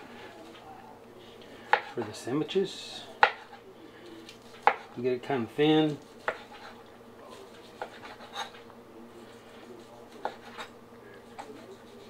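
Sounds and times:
knife sawing through meat: 0:07.4 - 0:08.6, 0:11.3 - 0:12.0.

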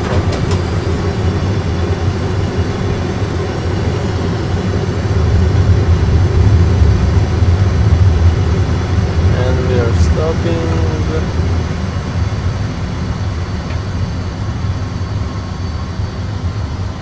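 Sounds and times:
jet engine and runway rumble: 0:00.0 - 0:17.0.

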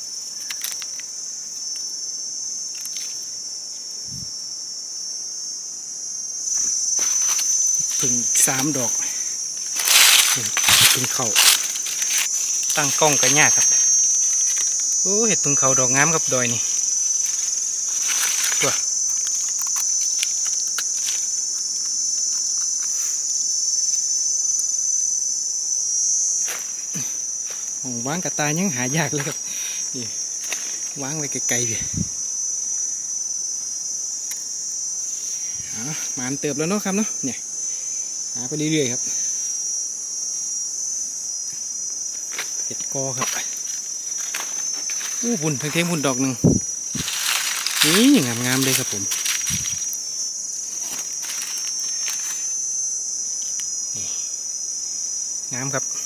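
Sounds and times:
insect chorus: 0:00.0 - 0:56.0
dry leaves crackling: 0:06.6 - 0:23.4, 0:43.2 - 0:52.5.

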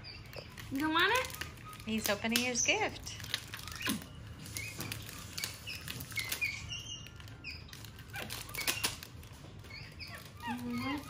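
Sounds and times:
monkey chirping: 0:00.0 - 0:11.0
plastic wrapping crinkling: 0:00.0 - 0:11.0.

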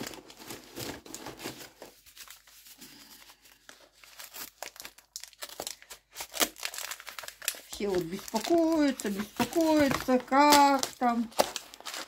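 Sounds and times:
cardboard rustling and scraping: 0:00.0 - 0:02.8.

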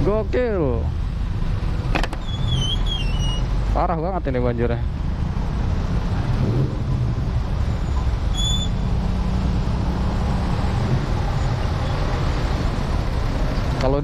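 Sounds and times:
high-pitched squeak: 0:02.2 - 0:03.5, 0:07.8 - 0:08.8.

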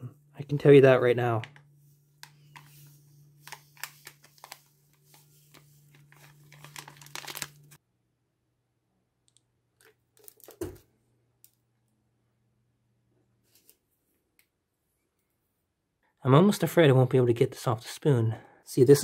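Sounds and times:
plastic packaging crinkling: 0:02.2 - 0:07.8, 0:09.8 - 0:10.8.

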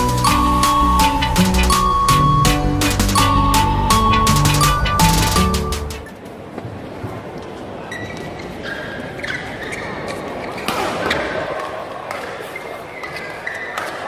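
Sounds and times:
crowd voices: 0:00.0 - 0:14.0
shoes squeaking on court floor: 0:07.4 - 0:11.4, 0:12.1 - 0:14.0
rackets hitting shuttlecock: 0:10.6 - 0:14.0.

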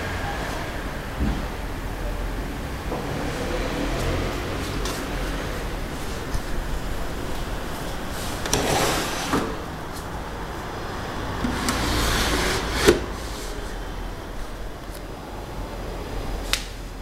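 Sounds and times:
wooden drawer scraping: 0:05.9 - 0:10.1, 0:11.3 - 0:13.7.

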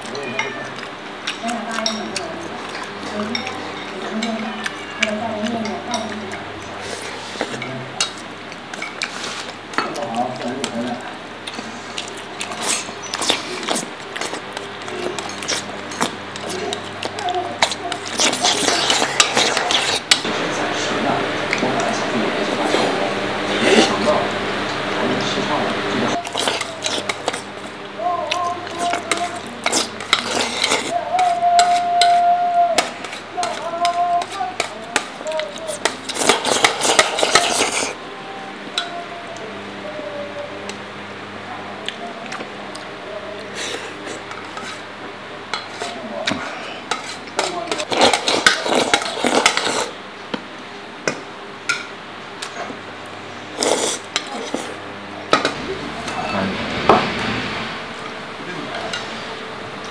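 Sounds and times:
chewing: 0:00.0 - 0:20.2, 0:26.1 - 0:31.8, 0:32.8 - 0:38.0, 0:45.6 - 0:50.0
chopsticks clinking on dishes: 0:00.1 - 0:06.8, 0:14.2 - 0:16.9
chopsticks scraping a rice bowl: 0:11.5 - 0:20.2, 0:26.1 - 0:27.8, 0:28.4 - 0:32.2, 0:32.8 - 0:38.0, 0:43.5 - 0:44.9, 0:45.5 - 0:50.0, 0:53.6 - 0:54.8.

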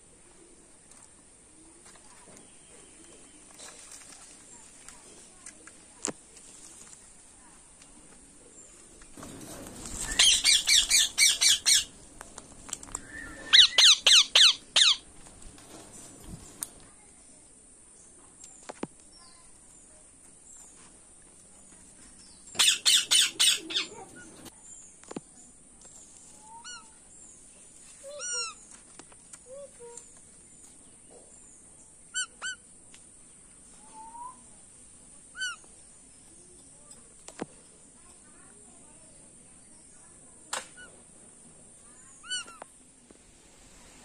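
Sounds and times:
parakeets screeching: 0:09.7 - 0:12.0, 0:13.2 - 0:15.0, 0:22.6 - 0:24.5
parakeet chirps: 0:10.1 - 0:11.9, 0:13.1 - 0:15.0, 0:22.6 - 0:24.2.

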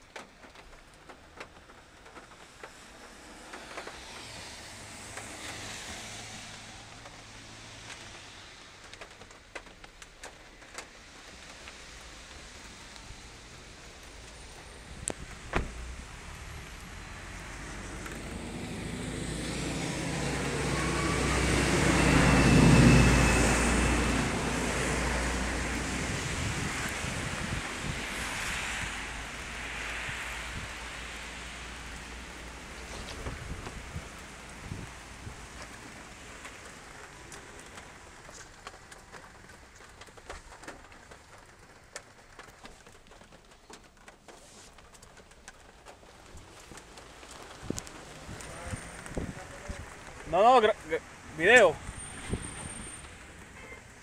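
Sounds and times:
raindrop ticks: 0:00.0 - 0:19.6, 0:20.2 - 0:54.0
car passing on wet road: 0:00.0 - 0:54.0
car door shutting: 0:15.5 - 0:15.9.

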